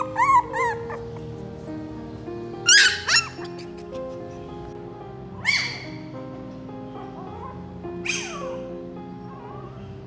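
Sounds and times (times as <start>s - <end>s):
puppy yelping: 0.0s - 1.4s, 2.7s - 4.0s, 5.4s - 6.1s, 7.2s - 8.7s
background music of held notes: 0.0s - 10.0s.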